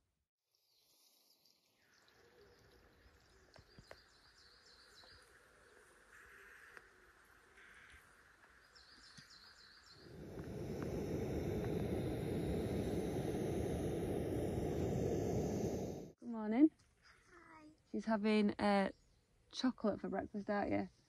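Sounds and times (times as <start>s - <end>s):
birds chirping: 1.1s - 16.2s
camping stove burner hissing: 1.7s - 16.2s.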